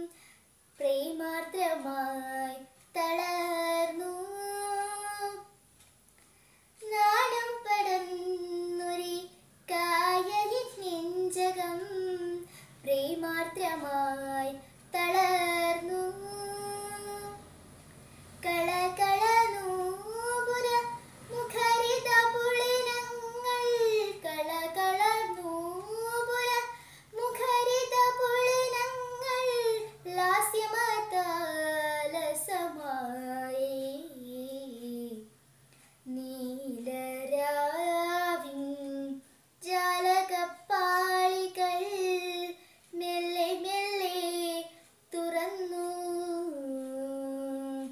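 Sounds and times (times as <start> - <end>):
girl singing unaccompanied: 0.0 - 47.9.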